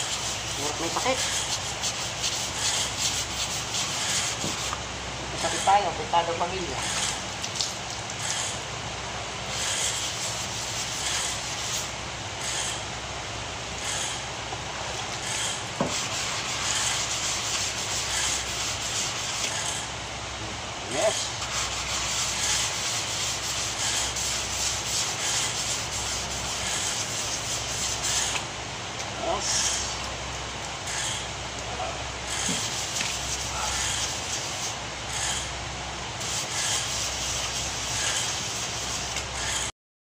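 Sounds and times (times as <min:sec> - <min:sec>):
sandpaper rubbing on metal: 0:00.0 - 0:07.3, 0:09.5 - 0:12.8, 0:15.0 - 0:19.8, 0:20.9 - 0:28.4, 0:32.3 - 0:35.5, 0:36.2 - 0:39.7.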